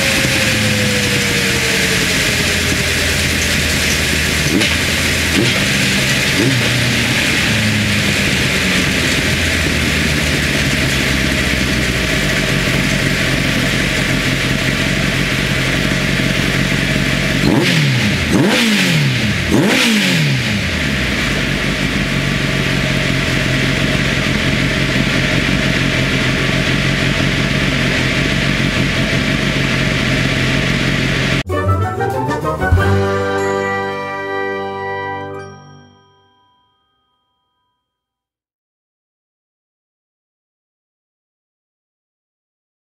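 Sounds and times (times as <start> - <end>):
motorcycle engine running: 0.0 - 31.5.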